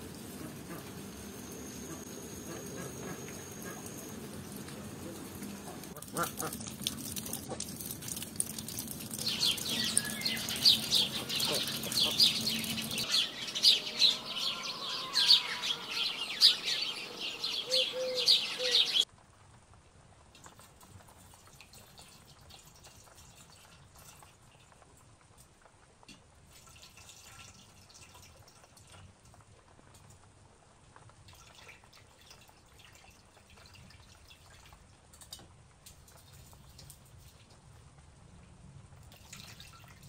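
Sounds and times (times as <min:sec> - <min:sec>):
ducks and birds calling: 0:00.1 - 0:07.6, 0:09.2 - 0:19.0
sharp high bird calls: 0:09.2 - 0:19.0.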